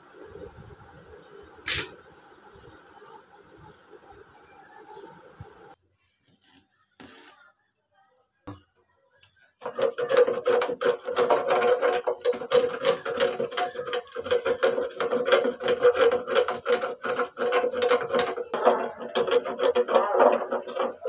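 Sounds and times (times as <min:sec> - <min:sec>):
spatula scraping a metal pot: 0:09.6 - 0:21.0.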